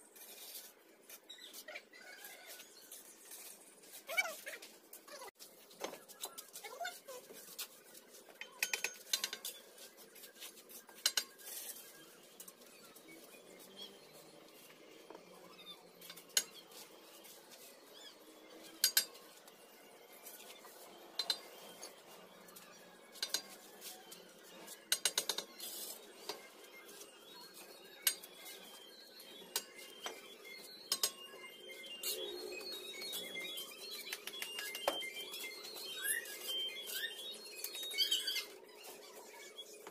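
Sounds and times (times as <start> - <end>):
trowel tapping and scraping on bricks: 8.4 - 9.6.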